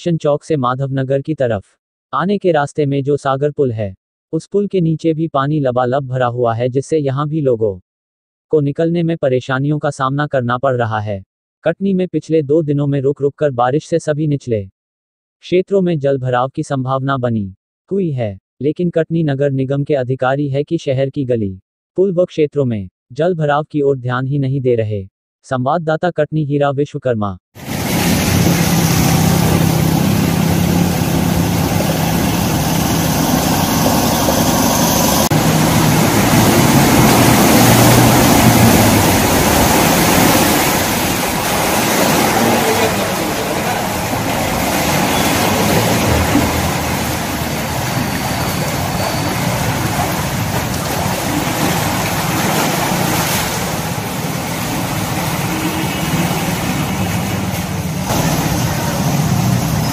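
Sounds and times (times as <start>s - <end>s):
motorcycle and car engines: 27.6s - 53.1s, 53.7s - 59.9s
water splashing and sloshing: 27.6s - 59.9s.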